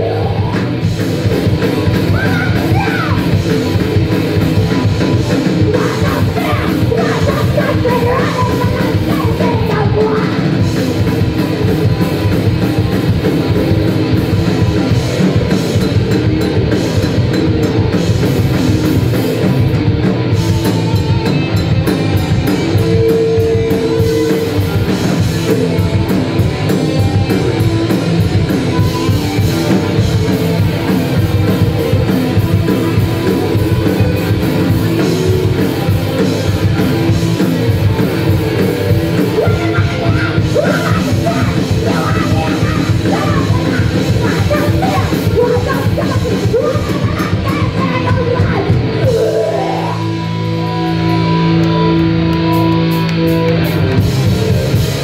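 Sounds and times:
bass guitar: 0.0s - 55.0s
drum kit: 0.0s - 55.0s
electric guitar: 0.0s - 55.0s
person singing: 5.6s - 10.6s, 39.2s - 50.4s.

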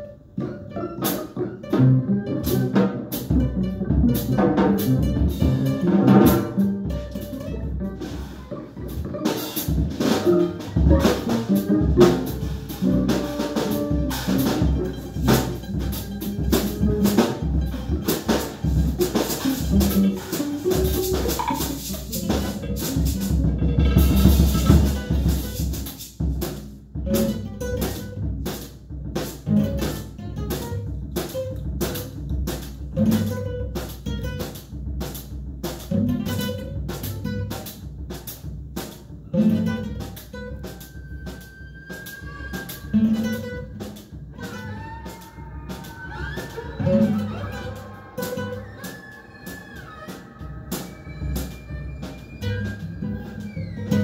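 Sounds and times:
bowed violin: 0.0s - 25.6s, 39.2s - 54.0s
acoustic guitar: 0.0s - 28.6s, 29.3s - 35.2s, 35.8s - 37.8s, 38.8s - 54.0s
drum kit beat: 0.0s - 54.0s.

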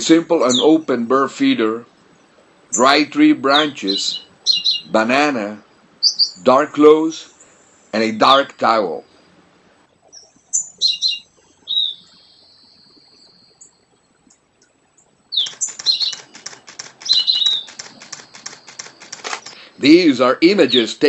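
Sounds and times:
birds chirping: 0.0s - 21.0s
camera shutter burst: 15.5s - 19.6s.

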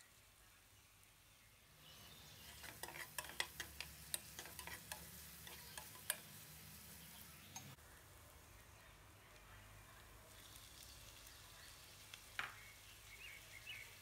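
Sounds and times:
frying sizzle: 0.0s - 8.3s, 9.3s - 14.0s
spatula knocking and scraping pan: 2.4s - 6.9s.

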